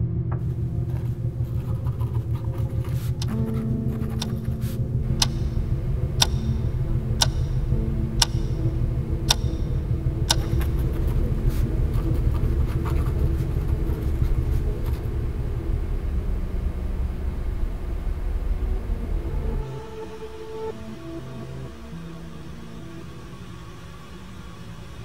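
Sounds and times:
low rumble: 0.0s - 25.0s
pen scratching on paper: 0.9s - 4.8s
wall clock ticking: 4.2s - 8.7s, 9.3s - 11.0s.

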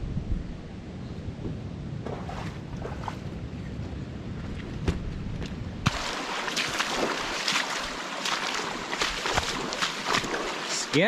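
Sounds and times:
wind buffeting microphone: 0.0s - 10.6s
boots splashing through water: 5.9s - 11.0s.

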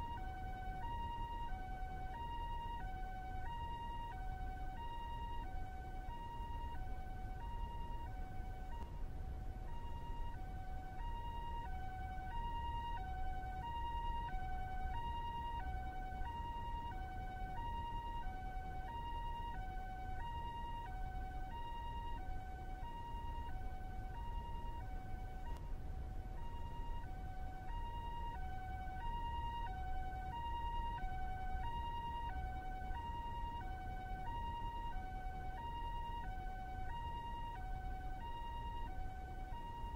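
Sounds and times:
low steady rumble: 0.0s - 39.9s
two-tone ambulance siren: 0.0s - 39.9s.

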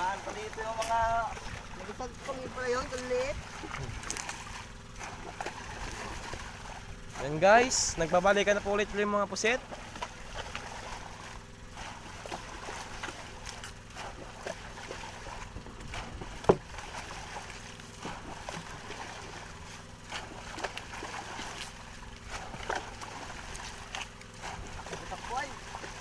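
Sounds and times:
water splashing and churning: 0.0s - 26.0s.

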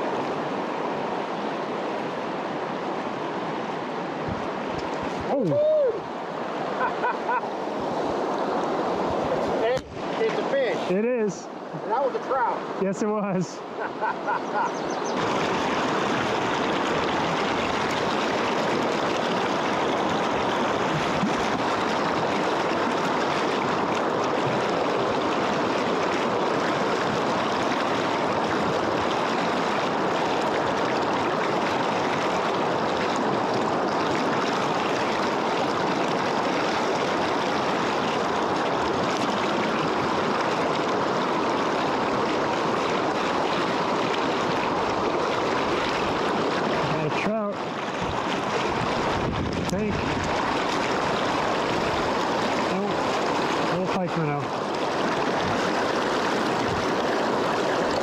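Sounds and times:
rushing river water: 0.0s - 58.0s.

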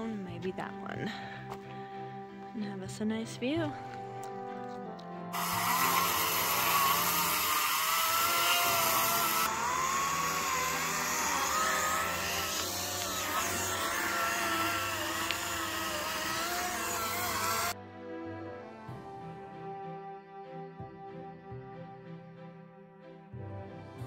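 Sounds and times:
chainsaw cutting branches: 5.3s - 17.8s.

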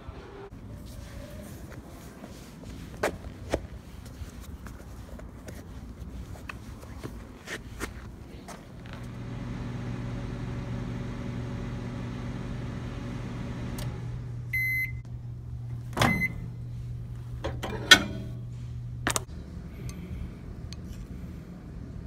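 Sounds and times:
microwave oven humming: 8.8s - 22.0s
microwave beep: 12.9s - 15.0s, 16.0s - 16.5s.

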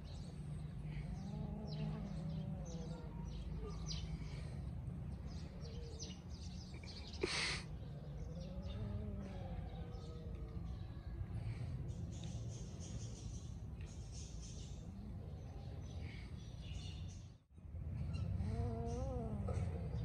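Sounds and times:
small birds chirping: 0.0s - 20.0s
distant cow lowing: 0.8s - 4.0s, 6.8s - 11.1s, 18.1s - 20.0s.

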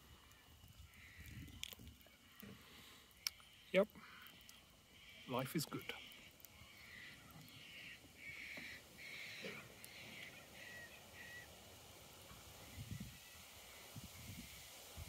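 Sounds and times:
bird giving rough calls: 2.2s - 11.6s.

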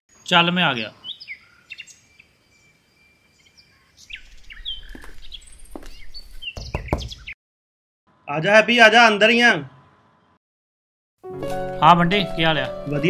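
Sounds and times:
birds chirping: 0.1s - 7.4s.

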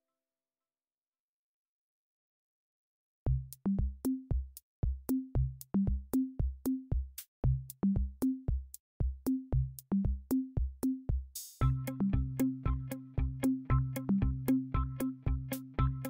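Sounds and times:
electronic music with drum machine: 9.3s - 16.0s.

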